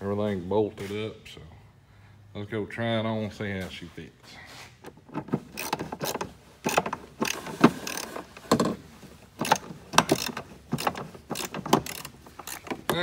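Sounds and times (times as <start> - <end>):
metal clanks and knocks: 4.9 - 13.0
screwdriver scraping metal: 5.5 - 8.3, 9.4 - 13.0.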